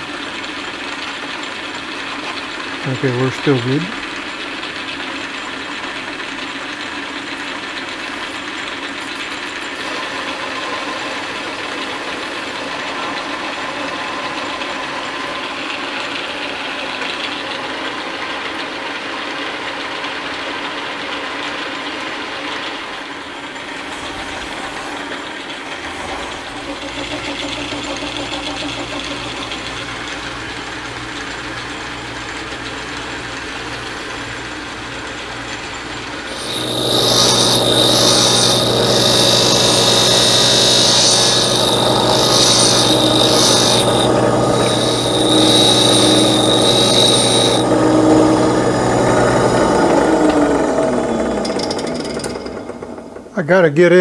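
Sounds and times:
metal lathe running: 0:00.0 - 0:19.9, 0:21.6 - 0:53.3
bench grinder grinding: 0:23.3 - 0:53.2.

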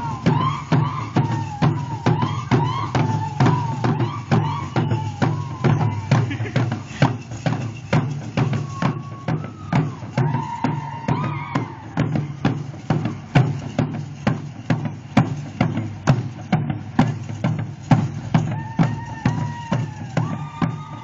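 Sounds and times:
drum beating steady rhythm: 0:00.0 - 0:21.0.

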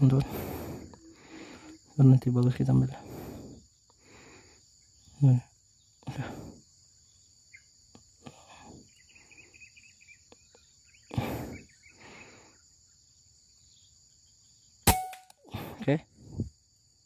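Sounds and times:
insects shrilling: 0:00.0 - 0:15.8
soft bird chirps: 0:03.5 - 0:14.9.

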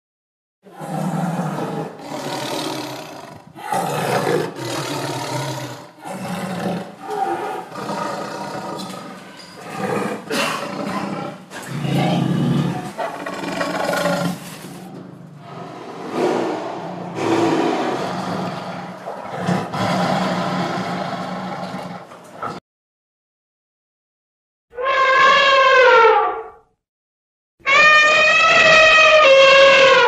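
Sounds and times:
tiger growling and snarling: 0:00.7 - 0:22.6.

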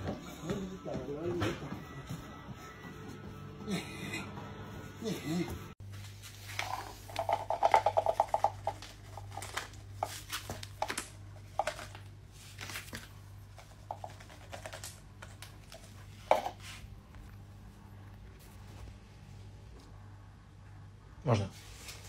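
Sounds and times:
low steady hum: 0:02.2 - 0:22.0
kibble rattling in plastic cup: 0:06.6 - 0:12.1, 0:13.6 - 0:15.4
kibble clicking on hard floor: 0:07.1 - 0:09.8.

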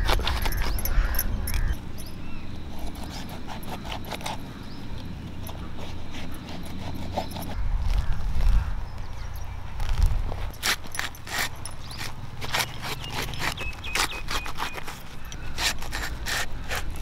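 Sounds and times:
blade crunching through fruit rind: 0:00.0 - 0:01.2, 0:02.6 - 0:04.5, 0:09.8 - 0:17.0.

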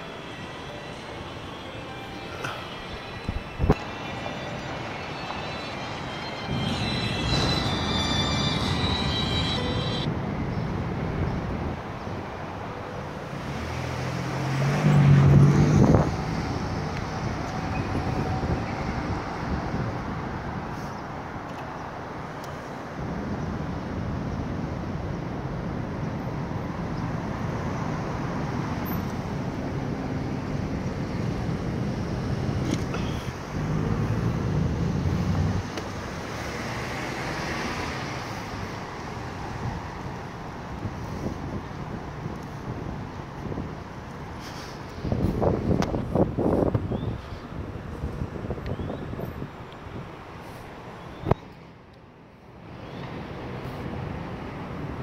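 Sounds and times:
city traffic noise: 0:00.0 - 0:55.0
road noise: 0:00.0 - 0:55.0
vehicle passing close by: 0:13.4 - 0:19.2, 0:33.4 - 0:39.0.

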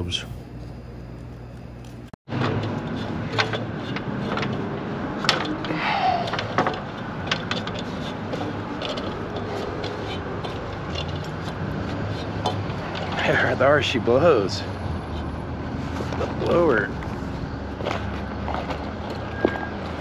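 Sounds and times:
shoes and hands on metal rungs: 0:02.3 - 0:20.0.

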